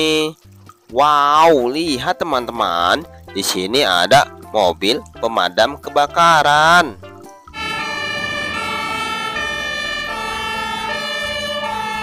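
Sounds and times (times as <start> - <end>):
two-tone fire engine siren: 7.5 - 12.0.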